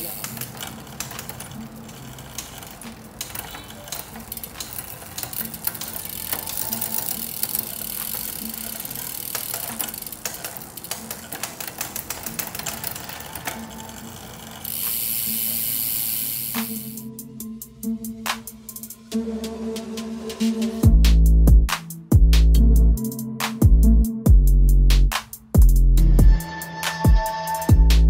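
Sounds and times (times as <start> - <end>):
bicycle chain running over gears: 0.0 - 17.1
bicycle hub ratcheting clicks: 0.0 - 17.2
faint background music: 0.0 - 21.1.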